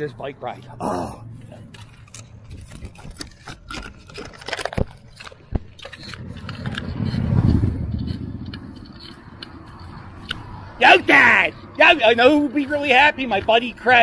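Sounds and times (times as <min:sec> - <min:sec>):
bicycle rumbling on street: 0:01.2 - 0:14.0
motorcycle engine passing by: 0:06.2 - 0:10.7.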